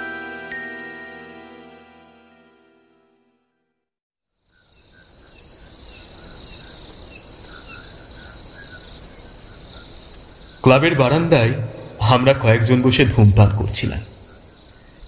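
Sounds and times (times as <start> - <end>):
crickets trilling: 4.4 - 15.0.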